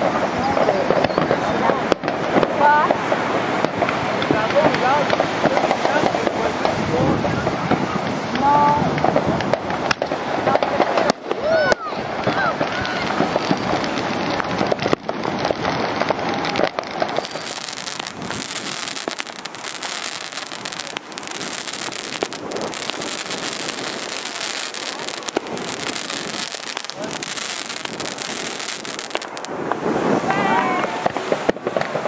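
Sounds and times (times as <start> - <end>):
fireworks crackling and popping: 0.0 - 32.0
continuous hiss: 7.9 - 32.0.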